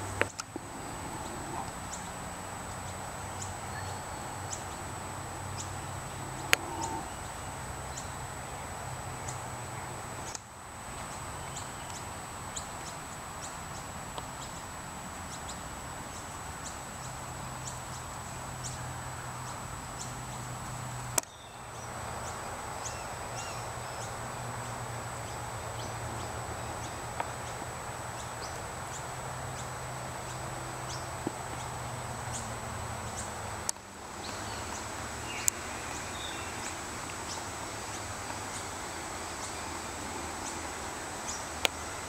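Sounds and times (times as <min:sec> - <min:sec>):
steady background hiss: 0:00.0 - 0:42.0
faint high ticks: 0:00.1 - 0:02.1, 0:05.6 - 0:08.2, 0:10.2 - 0:14.6, 0:21.0 - 0:21.4, 0:25.8 - 0:27.6, 0:33.1 - 0:38.6.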